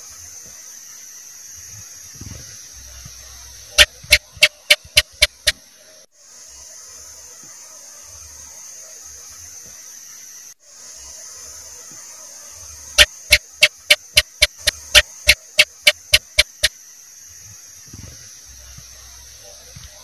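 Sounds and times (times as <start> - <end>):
steady hiss: 0.0 - 20.0
gecko chirping: 3.8 - 5.6, 13.0 - 16.7.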